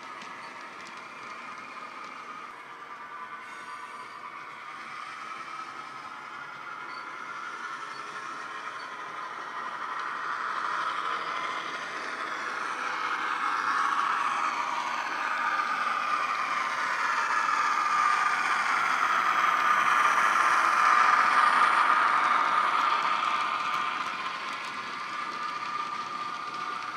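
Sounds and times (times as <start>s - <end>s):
wagons rattling on track: 0.0s - 26.9s.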